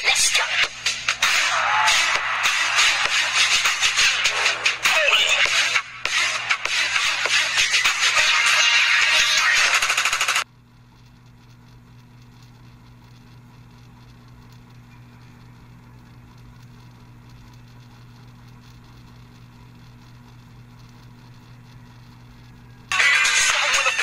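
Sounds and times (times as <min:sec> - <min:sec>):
low steady hum: 0:10.4 - 0:24.0.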